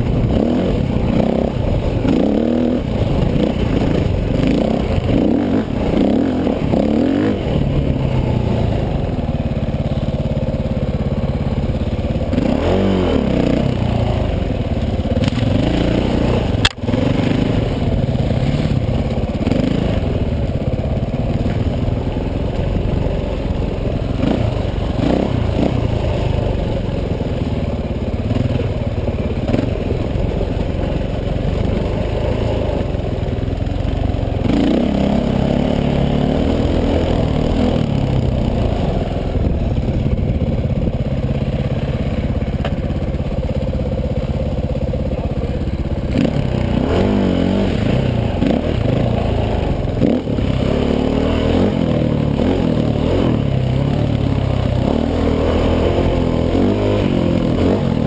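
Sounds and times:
dirt bike engine revving: 0.0s - 26.8s, 28.2s - 42.9s, 44.0s - 58.0s
sharp click: 16.6s - 16.9s.

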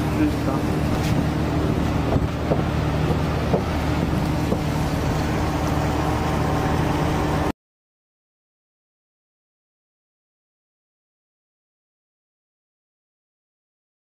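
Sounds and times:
heavy machinery droning: 0.0s - 7.5s.

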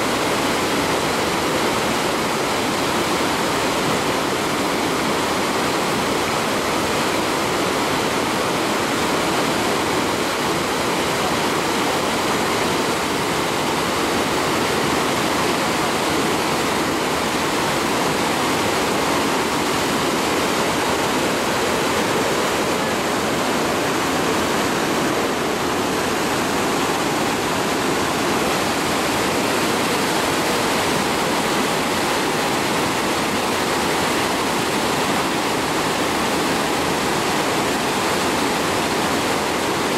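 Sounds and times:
river rushing over a weir: 0.0s - 39.9s.

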